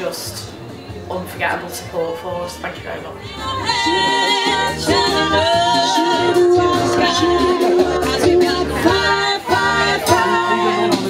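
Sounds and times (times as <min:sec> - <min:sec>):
music with pulsing bass: 0:03.2 - 0:11.0
women singing: 0:03.2 - 0:11.0.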